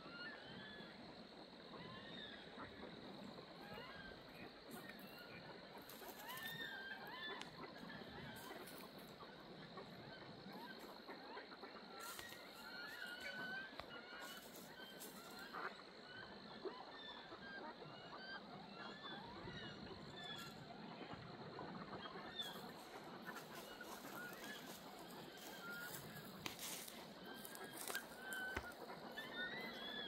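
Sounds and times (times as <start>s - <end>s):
steady outdoor hiss: 0.0s - 30.0s
ducks squealing calls: 3.5s - 30.0s.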